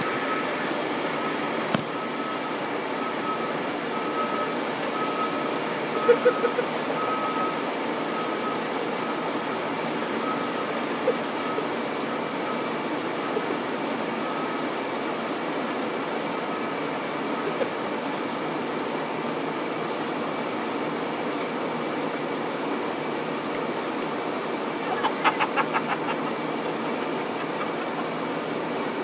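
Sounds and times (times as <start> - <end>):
faint steady tone: 0.0 - 19.8.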